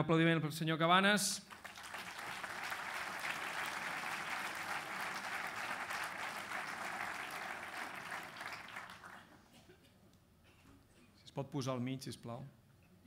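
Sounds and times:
audience applauding: 1.5s - 9.5s.

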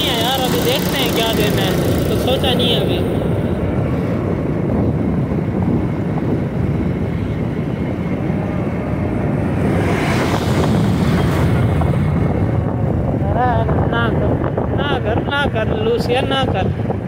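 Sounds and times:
vehicle running noise: 0.0s - 17.0s
wind rushing over microphone: 0.0s - 17.0s.

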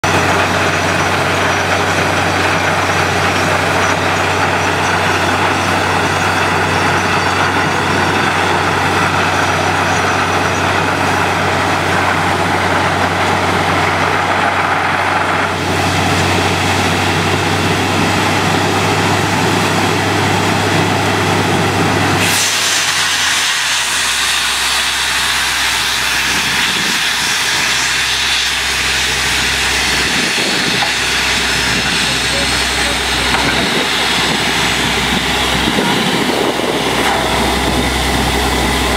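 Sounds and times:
drilling rig engine drone: 0.0s - 38.9s
loud even hiss: 22.1s - 38.9s.

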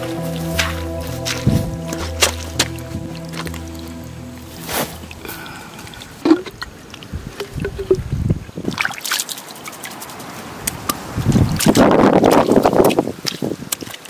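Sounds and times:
water splashing: 4.5s - 14.0s
water sloshing and trickling: 5.7s - 14.0s.

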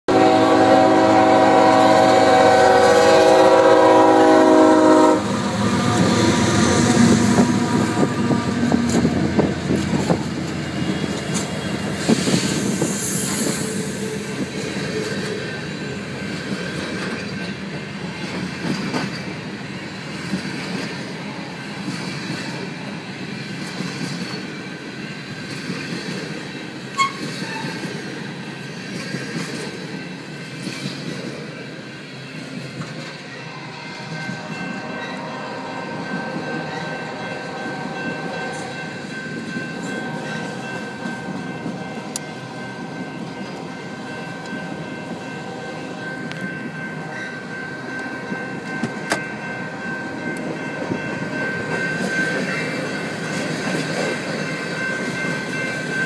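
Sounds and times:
locomotive air horn blast: 0.1s - 8.8s
freight train rolling past: 0.1s - 56.0s.

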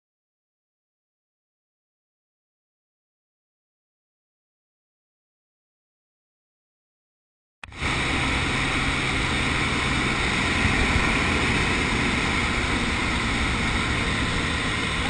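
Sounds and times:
propeller plane engine drone: 7.6s - 15.0s
rushing air: 7.6s - 15.0s.

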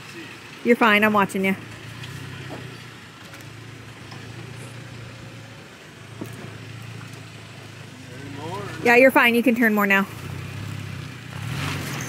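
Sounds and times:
truck engine running at low revs: 0.0s - 12.0s.

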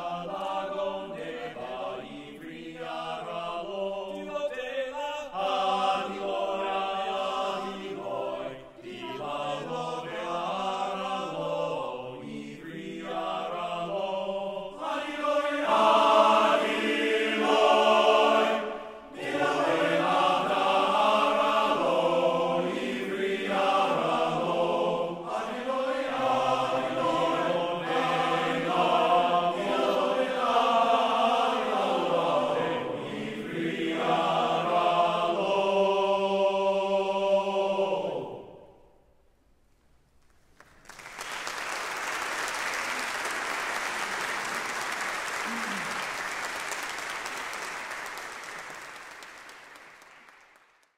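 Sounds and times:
men's chorus singing in harmony: 0.0s - 38.7s.

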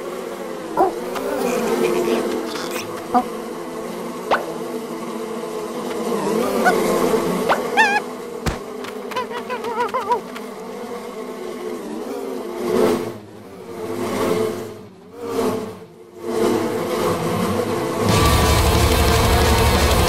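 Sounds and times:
cartoon bees buzzing: 0.0s - 20.0s
wavering cartoon cry: 6.5s - 8.1s, 9.1s - 10.3s.

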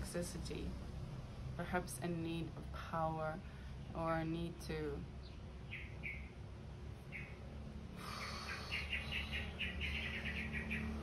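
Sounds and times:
small birds chirping: 3.2s - 11.0s.

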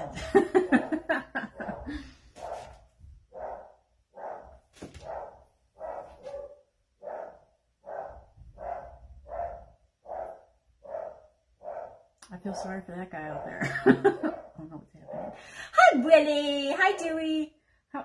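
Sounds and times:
dog barking: 1.6s - 12.7s, 13.3s - 15.4s.

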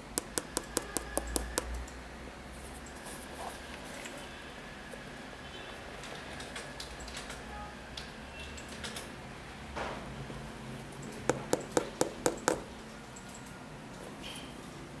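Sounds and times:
fingers tapping on shoe sole: 0.2s - 1.8s, 11.3s - 12.7s.

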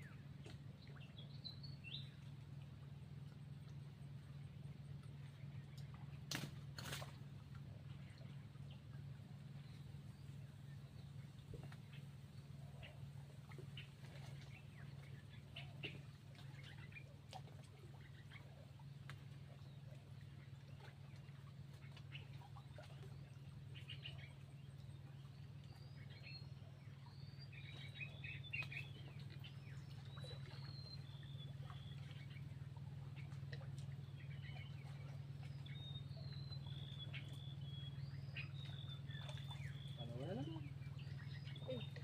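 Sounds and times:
steady low hum: 0.0s - 42.0s
small birds chirping: 17.9s - 42.0s.

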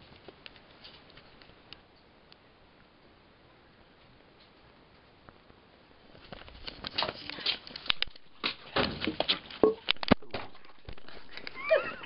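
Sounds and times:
footsteps on tiled patio: 3.8s - 12.0s.

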